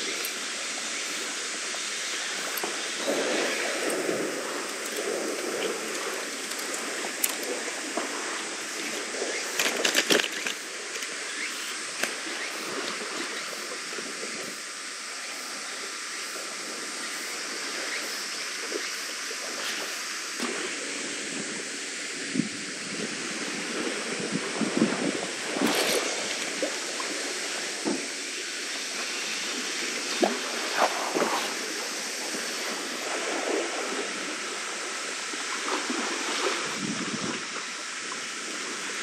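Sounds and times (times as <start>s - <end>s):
water lapping: 0.0s - 14.6s
wind: 0.0s - 39.0s.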